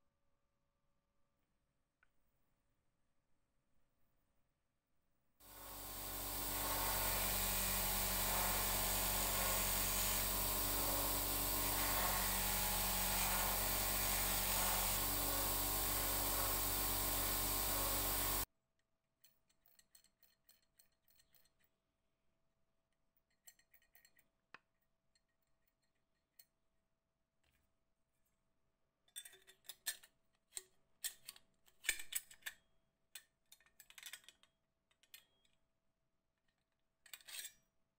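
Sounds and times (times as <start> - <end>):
metal rubbing on polishing wheel: 5.5 - 18.4
bench grinder motor hum: 5.5 - 18.5.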